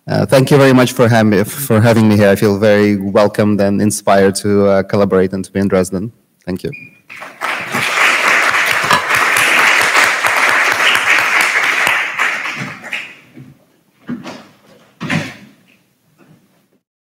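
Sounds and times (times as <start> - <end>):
audience applauding: 7.1 - 13.3.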